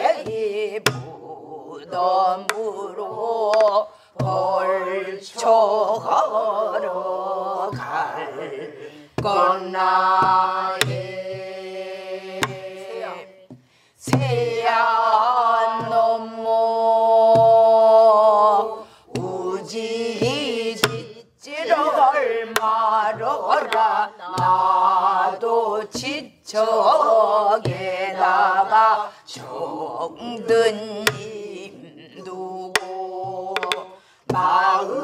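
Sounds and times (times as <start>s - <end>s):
woman singing folk song: 0.0s - 11.4s, 12.4s - 35.0s
group of voices singing: 0.0s - 35.0s.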